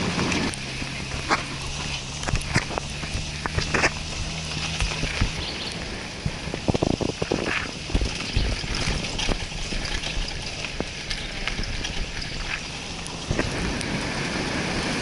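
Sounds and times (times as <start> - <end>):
wind on camera microphone: 0.0 - 15.0
camera knocking and rattling: 2.2 - 5.5.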